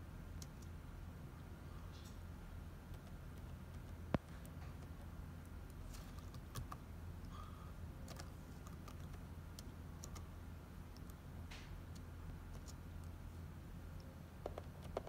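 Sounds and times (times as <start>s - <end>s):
steady low hum: 0.0s - 15.0s
laptop keyboard tapping: 2.9s - 6.8s, 14.4s - 15.0s.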